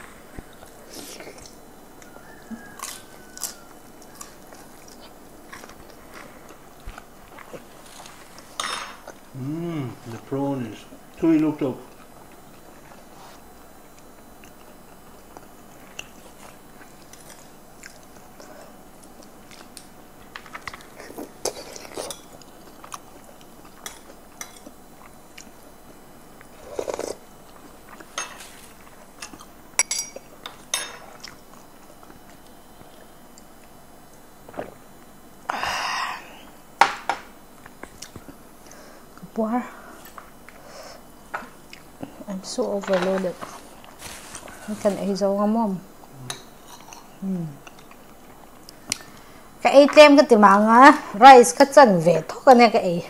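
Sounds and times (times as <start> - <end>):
chewing with mouth clicks: 0.3 - 9.2, 11.8 - 25.7, 26.4 - 29.6, 30.2 - 35.1, 37.6 - 39.2, 40.0 - 42.2.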